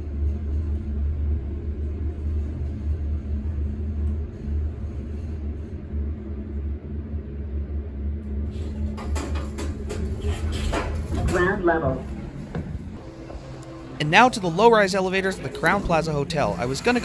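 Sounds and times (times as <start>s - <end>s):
faint hum: 0.0s - 17.0s
elevator rumble: 0.1s - 17.0s
elevator doors clattering: 8.8s - 17.0s.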